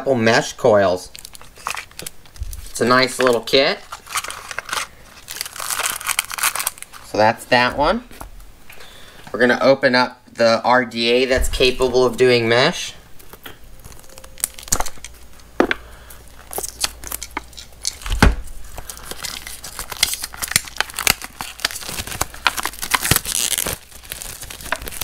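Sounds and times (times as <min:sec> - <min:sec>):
plastic shrink-wrap crinkling: 0:01.0 - 0:08.2, 0:13.1 - 0:25.0.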